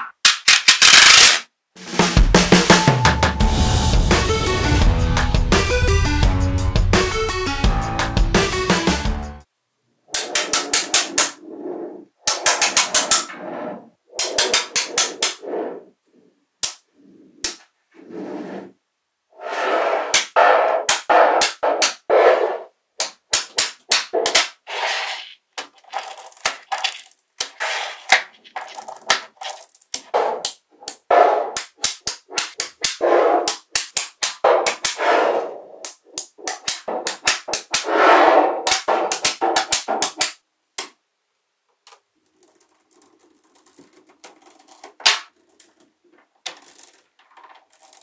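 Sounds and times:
magnetic balls clicking together: 25.5 - 35.0, 35.8 - 37.8, 38.6 - 41.0, 41.8 - 48.0.

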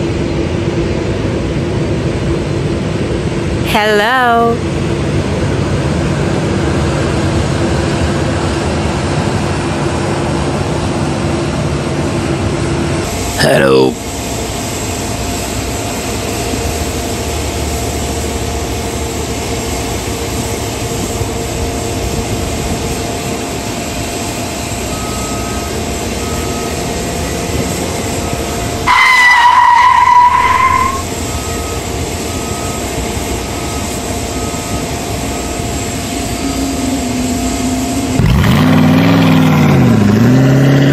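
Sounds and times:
jet engines rumbling and whining: 0.0 - 40.9
loud tone: 3.7 - 4.6, 13.4 - 14.0, 28.1 - 32.9, 33.5 - 40.9
vehicle beeping: 24.3 - 40.9
engine revving: 36.2 - 40.9.

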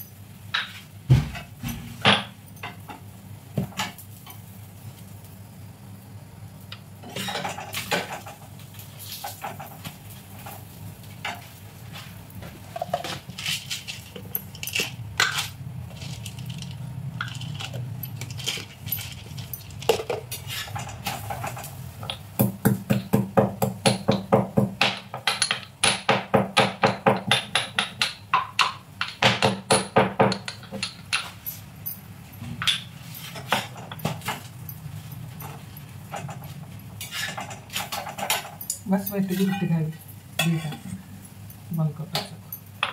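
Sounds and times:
metal spatula scraping griddle: 7.0 - 21.9, 35.4 - 38.6.

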